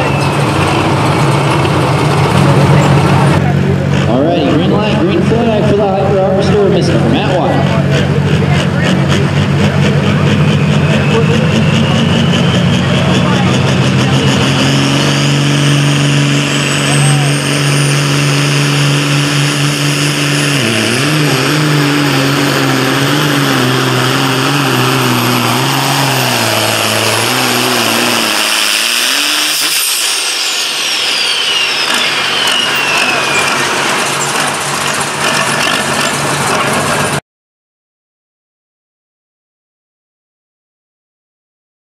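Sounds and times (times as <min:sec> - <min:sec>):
diesel tractor engine under load: 0:00.0 - 0:37.2
turbo whistle winding down: 0:10.4 - 0:13.5, 0:14.9 - 0:18.9, 0:20.6 - 0:34.6.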